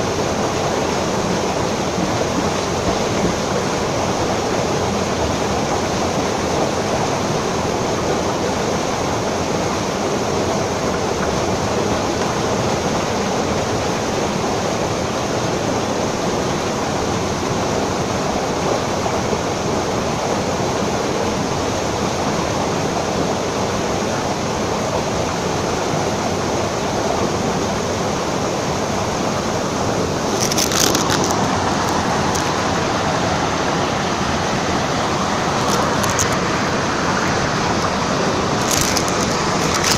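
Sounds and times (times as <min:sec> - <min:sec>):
water pouring into pool: 0:30.1 - 0:33.5, 0:34.9 - 0:39.9.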